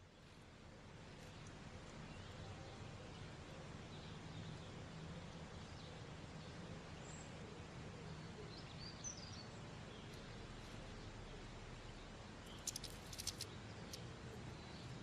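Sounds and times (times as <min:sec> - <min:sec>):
high bird chirps: 0:12.5 - 0:13.5.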